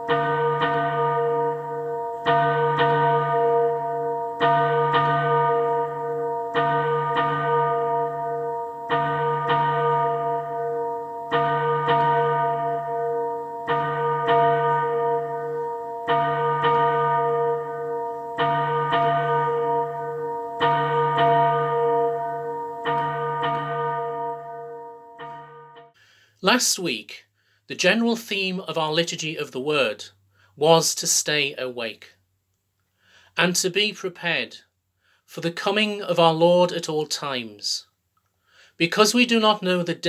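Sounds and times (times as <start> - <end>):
church bells ringing: 0.0 - 26.0.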